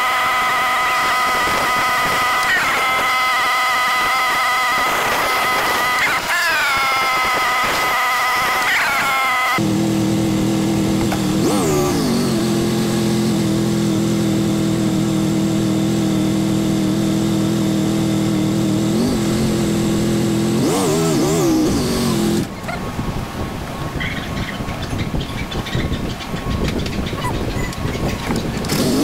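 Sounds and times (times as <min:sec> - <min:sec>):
motorcycle engine running: 0:09.5 - 0:22.7, 0:24.6 - 0:29.0
motorcycle throttle blips: 0:09.6 - 0:23.2.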